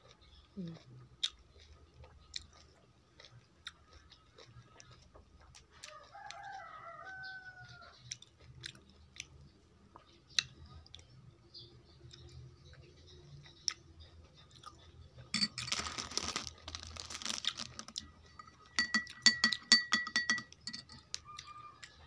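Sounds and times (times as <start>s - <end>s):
close chewing: 0.0s - 11.2s, 11.9s - 18.5s
rooster crowing: 5.9s - 7.9s, 21.2s - 22.0s.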